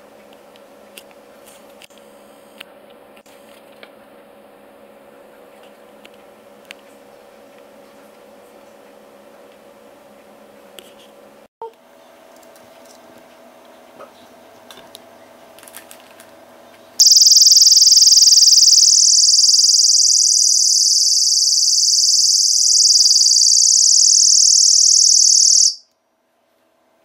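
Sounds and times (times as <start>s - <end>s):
high-pitched alarm shriek: 17.0s - 25.8s.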